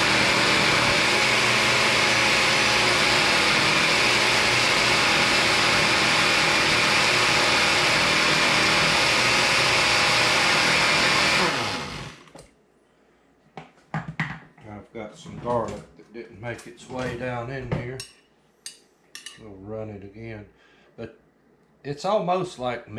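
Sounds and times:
blender motor running: 0.0s - 12.4s.

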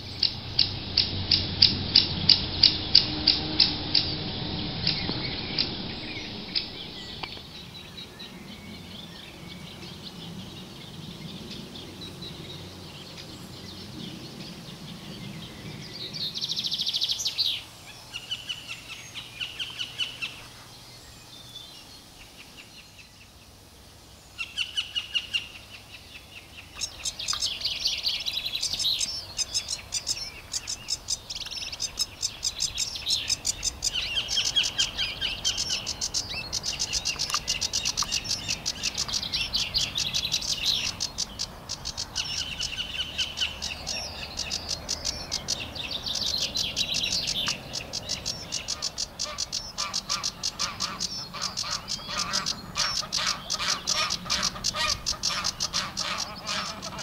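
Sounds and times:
small birds chirping and trilling: 0.0s - 57.0s.

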